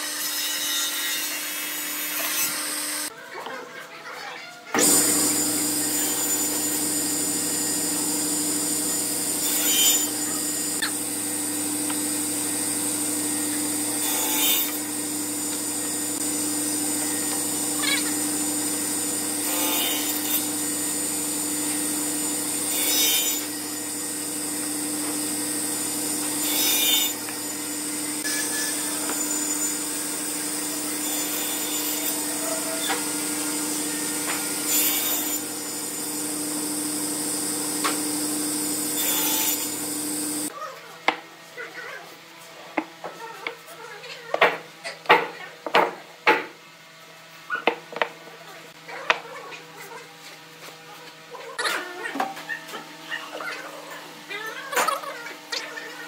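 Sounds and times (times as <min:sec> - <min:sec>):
table saw cutting wood: 0:00.0 - 0:03.1, 0:04.7 - 0:41.2.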